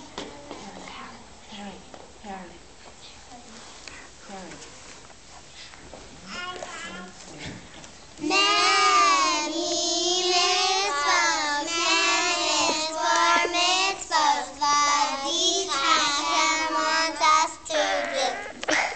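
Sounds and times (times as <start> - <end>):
girls singing together: 8.2 - 18.9.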